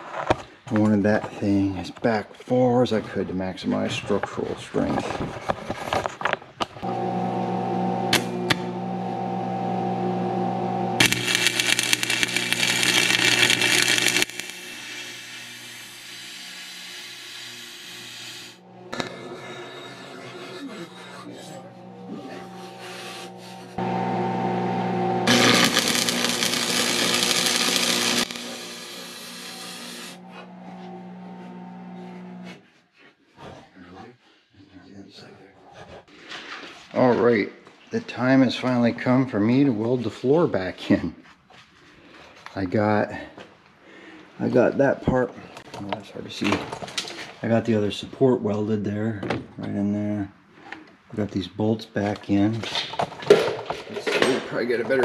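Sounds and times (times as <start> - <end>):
electric welder humming: 6.8 - 32.5
welding arc crackling and hissing: 8.1 - 8.7, 10.9 - 18.6, 24.6 - 30.3
steady low hum: 18.6 - 29.0.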